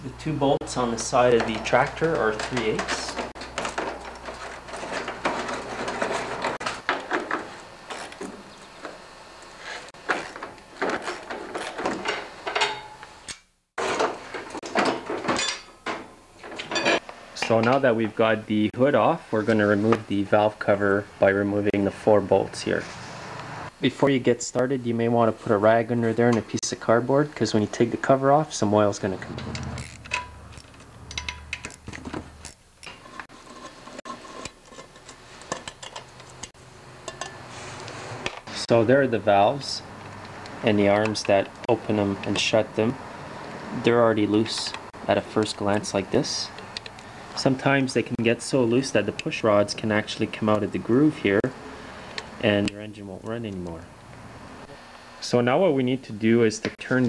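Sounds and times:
metal tools clattering and scraping: 0:00.6 - 0:08.3, 0:09.6 - 0:13.0, 0:13.8 - 0:17.8, 0:29.3 - 0:37.4.

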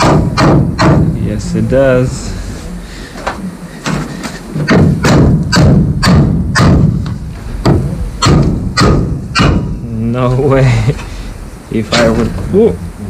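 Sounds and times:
hammer knocking on wood: 0:00.0 - 0:01.2, 0:03.8 - 0:09.8.

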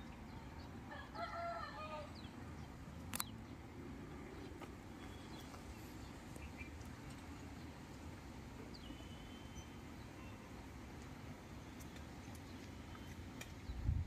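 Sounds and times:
outdoor background hiss: 0:00.0 - 0:14.0
small birds chirping: 0:00.0 - 0:14.0
lower pitched bird calls: 0:04.3 - 0:06.9, 0:08.6 - 0:10.6.

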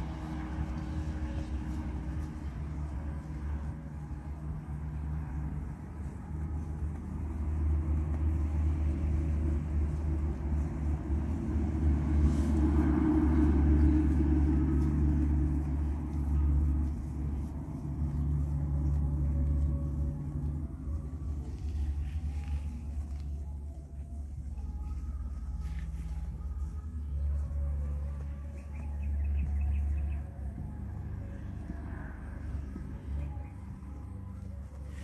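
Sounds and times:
calf rustling dry straw: 0:00.0 - 0:35.0
motor humming rumble: 0:00.0 - 0:35.0.

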